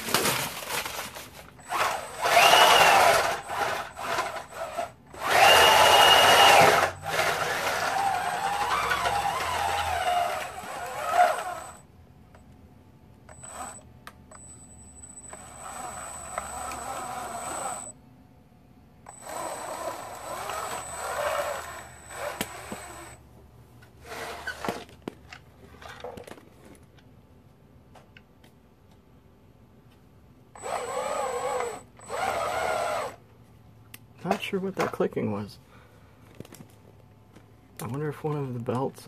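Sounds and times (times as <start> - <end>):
electric motor and belt drive whining: 1.6 - 11.9, 15.2 - 17.9, 19.1 - 23.2, 30.6 - 33.2.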